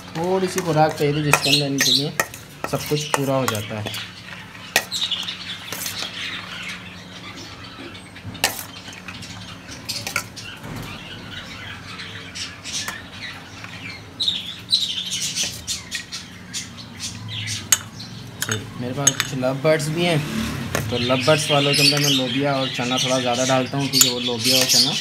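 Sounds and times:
budgies chattering and squawking: 0.0 - 25.0
metal spoon scraping steel plate: 0.4 - 4.1, 5.6 - 6.1.

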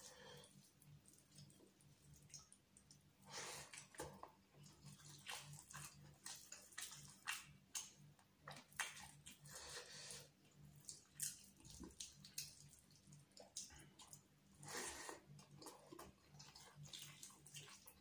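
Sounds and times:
chewing: 3.6 - 9.6, 10.4 - 18.0.

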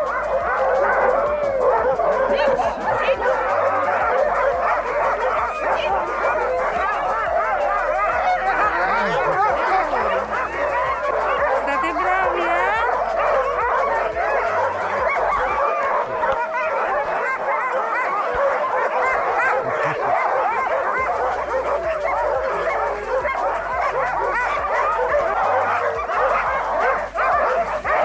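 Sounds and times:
sled dogs barking and whining: 0.0 - 28.0.

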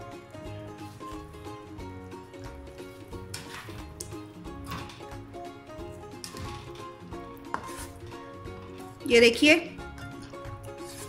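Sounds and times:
background music: 0.0 - 11.0
spatula scraping frying pan: 7.4 - 8.3.

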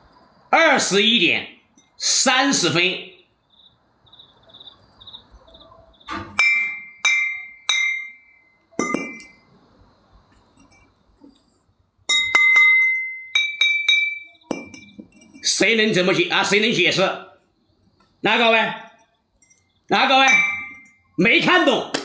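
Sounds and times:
glass bottles clinking: 6.3 - 9.5, 10.5 - 11.0, 12.1 - 15.6, 18.7 - 21.2.

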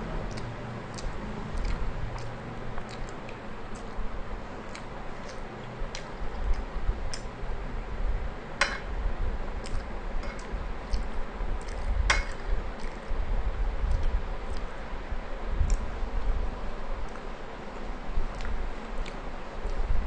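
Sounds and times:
chewing with wet mouth clicks: 0.2 - 4.0, 4.7 - 7.3, 9.6 - 13.2, 13.8 - 14.8, 18.3 - 19.8.

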